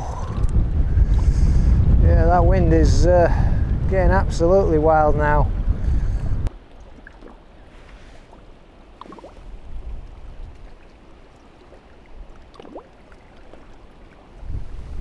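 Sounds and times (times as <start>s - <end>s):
wind rumbling on microphone: 0.0s - 15.0s
water lapping: 6.5s - 15.0s.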